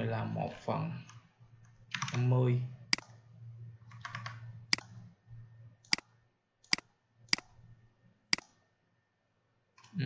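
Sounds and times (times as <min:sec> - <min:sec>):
faint low hum: 0:00.0 - 0:10.0
computer mouse clicks: 0:01.0 - 0:02.2, 0:02.9 - 0:03.2, 0:03.8 - 0:05.2, 0:05.8 - 0:07.7, 0:08.3 - 0:08.7, 0:09.7 - 0:10.0.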